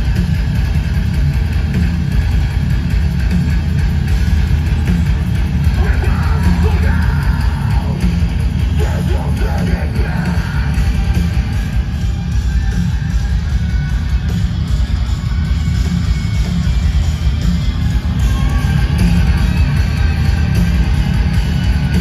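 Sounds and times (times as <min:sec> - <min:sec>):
heavy metal band playing: 0:00.0 - 0:22.0
vocalist yelling and singing: 0:05.6 - 0:11.0.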